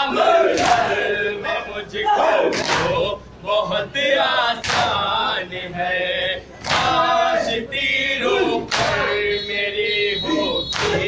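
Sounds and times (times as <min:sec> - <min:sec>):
men chanting in unison: 0:00.0 - 0:11.0.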